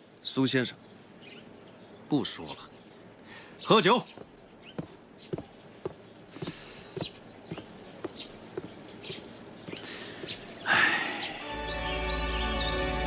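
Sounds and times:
footsteps walking: 4.1s - 10.6s.

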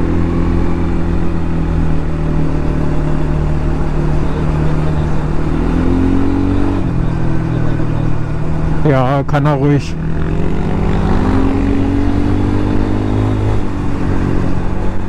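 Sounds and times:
quad engine running: 0.0s - 15.0s.

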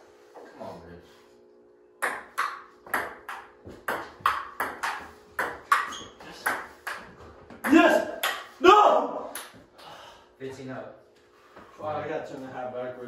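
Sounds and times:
ping-pong ball hits: 2.0s - 8.6s, 9.3s - 9.6s.

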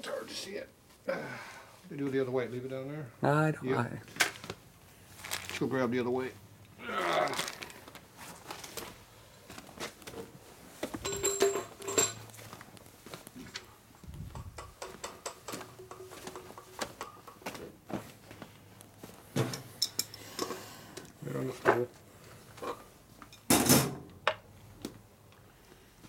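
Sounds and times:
metal items clinking: 11.0s - 12.4s, 14.4s - 17.4s
footsteps on rubber mat: 17.4s - 19.3s.

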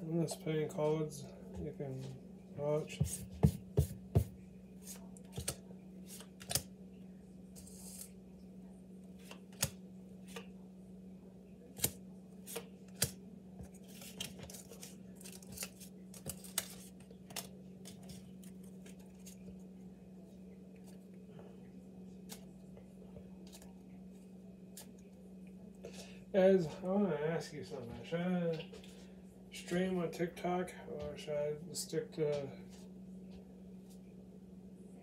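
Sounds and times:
steady low hum: 0.0s - 35.0s
cards riffling: 4.8s - 6.7s, 9.2s - 10.5s, 11.8s - 19.5s
playing cards snapping and clicking: 5.3s - 6.7s, 9.2s - 10.5s, 11.8s - 13.2s, 14.0s - 18.1s.

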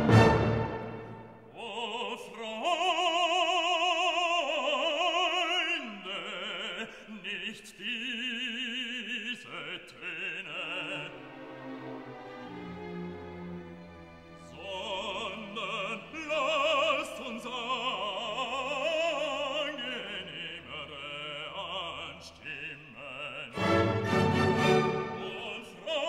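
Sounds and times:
operatic voice singing: 1.4s - 11.7s, 14.4s - 26.0s
soft musical accompaniment: 10.9s - 16.8s, 23.5s - 25.7s.

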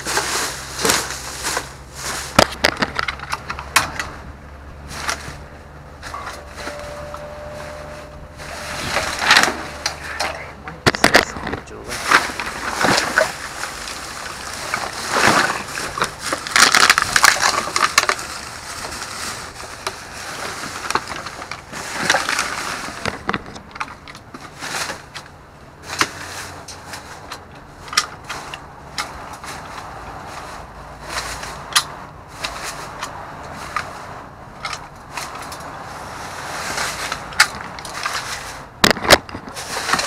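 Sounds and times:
plastic bags crinkling: 0.0s - 4.1s, 7.5s - 40.0s
clicks and knocks in dumpster: 0.0s - 4.2s, 4.9s - 18.9s.

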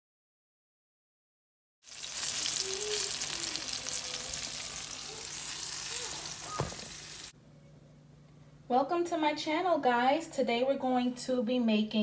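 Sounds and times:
fish fillets sizzling in oil: 1.8s - 7.3s.

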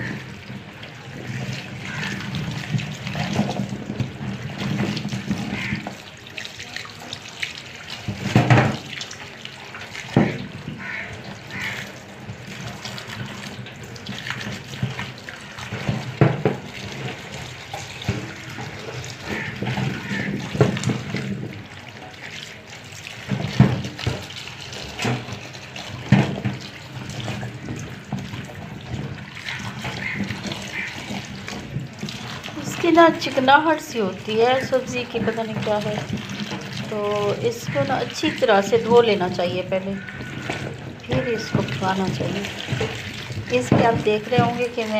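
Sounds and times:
tap water running into sink: 0.0s - 44.9s
knocks and clatters: 1.2s - 6.2s, 8.0s - 9.0s, 9.9s - 22.4s, 23.1s - 33.3s, 38.8s - 44.8s.

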